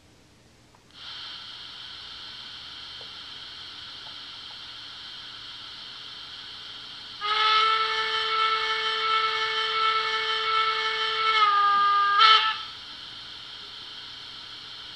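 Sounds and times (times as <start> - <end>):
steam hiss from small speaker: 0.9 - 14.9
steam whistle: 3.3 - 14.2.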